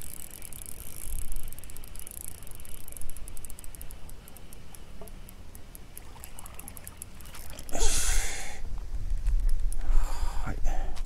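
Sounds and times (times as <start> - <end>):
fishing reel ticking: 0.0 - 8.4
water splashing and trickling: 5.7 - 8.6.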